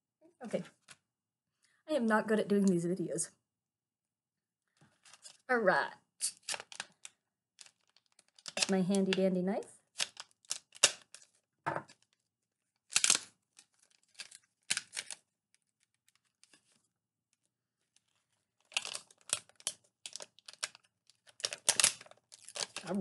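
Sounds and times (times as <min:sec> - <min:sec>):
packaging being torn open: 0:06.2 - 0:08.7, 0:10.0 - 0:12.2, 0:12.8 - 0:16.6, 0:18.6 - 0:23.0.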